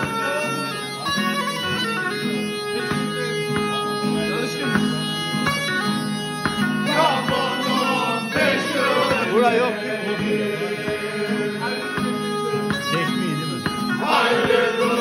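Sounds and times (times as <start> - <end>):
bagpipe playing folk tune: 0.0 - 15.0
guitar accompaniment: 0.0 - 15.0
men singing along: 6.9 - 11.9, 14.0 - 15.0.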